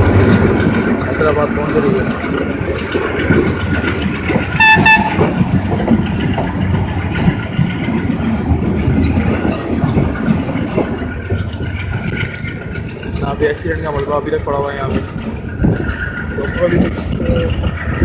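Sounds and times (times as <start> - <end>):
train wheels clattering on rails: 0.0 - 18.0
train horn blasts: 4.5 - 5.4.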